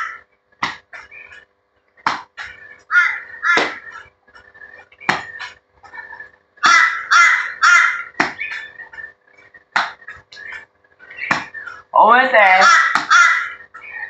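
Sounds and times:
crow cawing: 0.0 - 0.2, 2.9 - 4.0, 6.6 - 8.2, 12.6 - 13.9.

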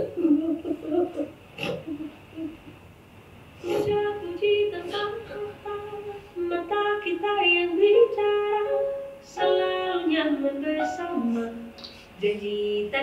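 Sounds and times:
woman singing pop song: 3.6 - 13.0.

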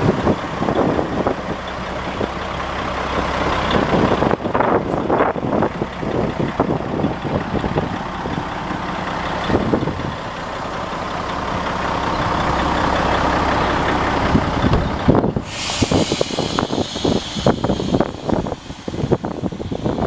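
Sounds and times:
diesel truck idling: 0.0 - 20.0
steady hiss: 15.5 - 20.0.

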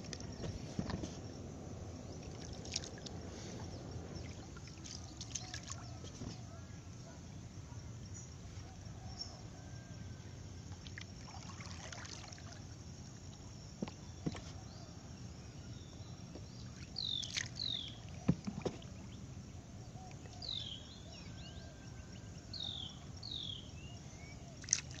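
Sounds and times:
steady low rumble: 0.0 - 6.9.

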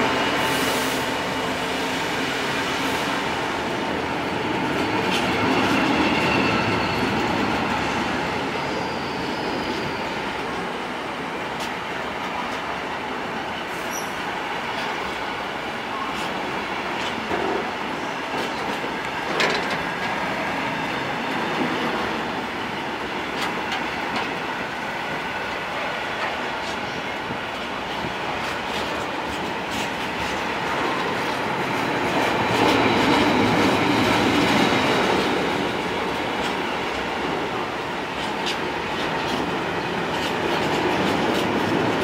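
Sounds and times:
train wheel rumble: 0.0 - 42.0
high wheel squeal: 5.4 - 10.4
wheels clicking over rail joints: 18.4 - 20.2.

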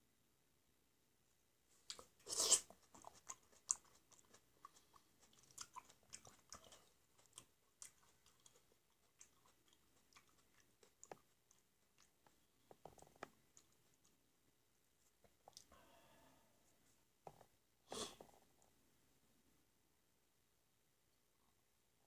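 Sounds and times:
soft chewing clicks: 1.8 - 14.3, 15.1 - 15.7.

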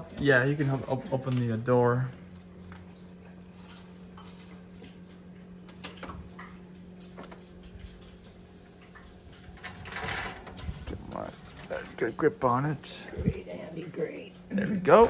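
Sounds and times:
oven door opening: 9.5 - 11.8
oven rack sliding out: 9.6 - 10.9.

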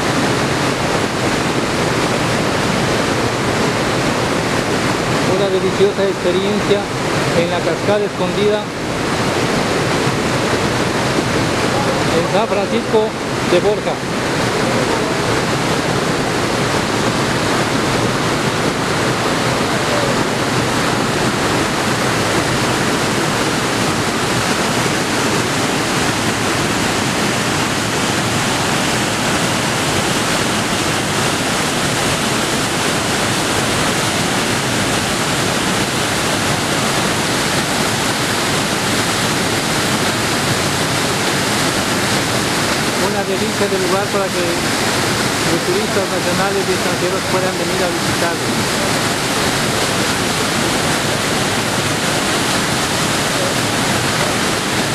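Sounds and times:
water tumbling over rocks: 0.0 - 54.9.

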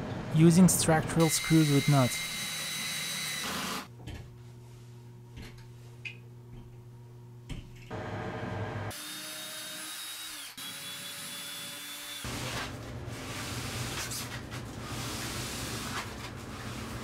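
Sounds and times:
cordless drill whining: 1.4 - 3.9.

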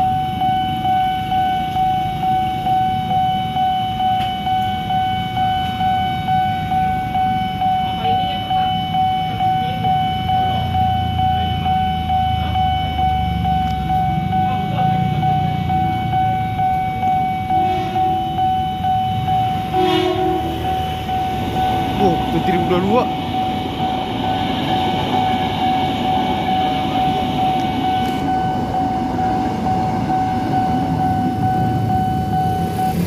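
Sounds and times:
idling motorcycles and cars rumble: 0.0 - 33.0
level crossing alarm pulsing tone: 0.0 - 33.0
short horn blasts: 17.6 - 18.2, 19.7 - 20.8.

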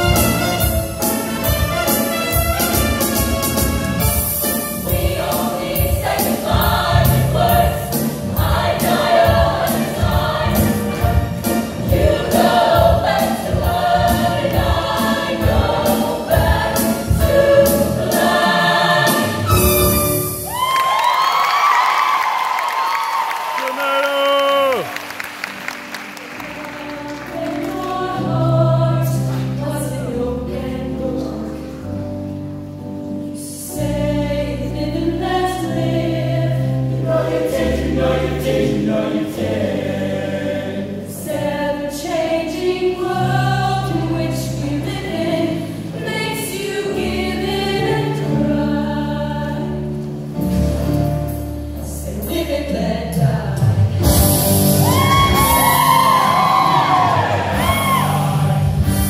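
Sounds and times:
choir singing with instruments: 0.0 - 20.8, 26.5 - 31.8, 33.3 - 59.0
high whoops: 20.4 - 25.0, 54.8 - 58.4.

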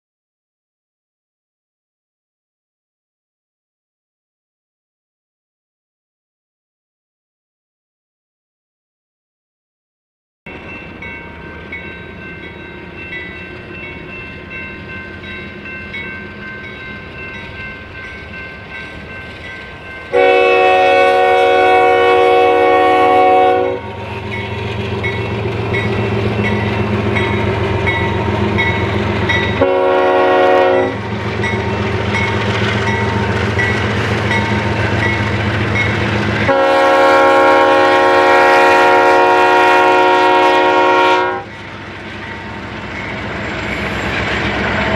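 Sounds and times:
low rumble of rolling train: 10.5 - 44.9
train air horn blasts: 20.1 - 24.0, 29.5 - 31.0, 36.5 - 41.5.

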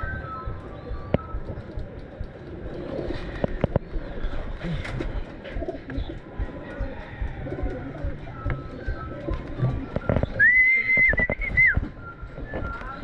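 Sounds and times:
pigeons cooing: 0.0 - 13.0
person whistling a high note: 10.4 - 13.0.

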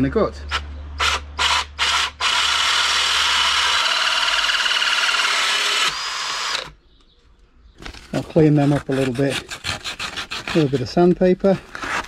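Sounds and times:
drill hole saw cutting wood: 0.5 - 6.7.

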